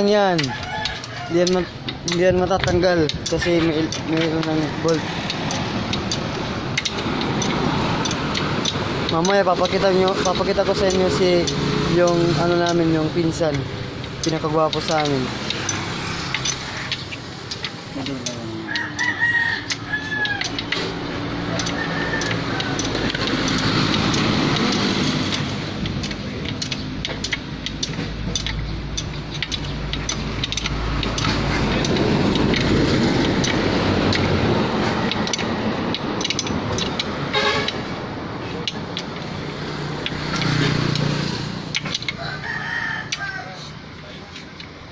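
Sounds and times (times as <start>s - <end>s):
rooster crowing: 0.4s - 1.7s, 18.7s - 20.7s, 21.3s - 23.1s, 42.1s - 43.8s
metal clinks on engine block: 21.6s - 37.8s.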